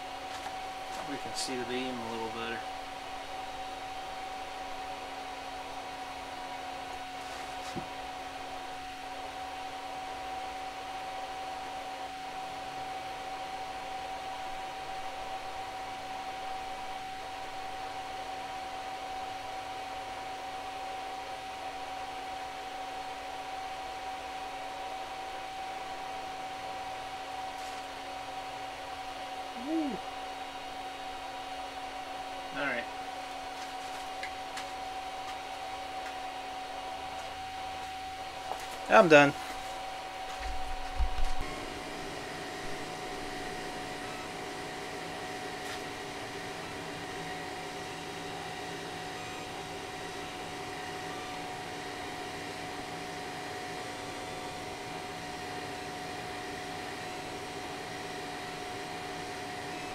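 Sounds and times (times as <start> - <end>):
cooling fans whirring: 0.0 - 59.9
brief voice: 29.6 - 30.0
high-pitched tone: 41.4 - 44.5.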